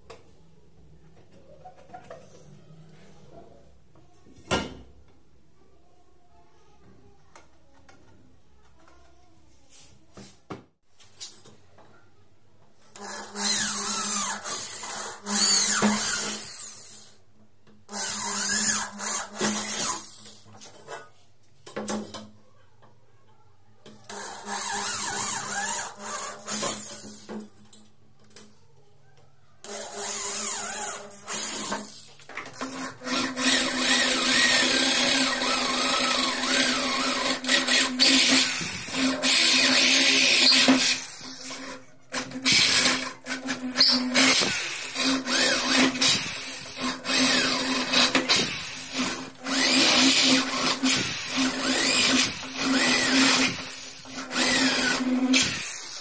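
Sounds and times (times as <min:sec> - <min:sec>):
cordless drill boring into aluminium: 0:13.0 - 0:17.1, 0:17.9 - 0:20.2, 0:24.1 - 0:27.3, 0:29.6 - 0:32.0, 0:32.6 - 0:56.0.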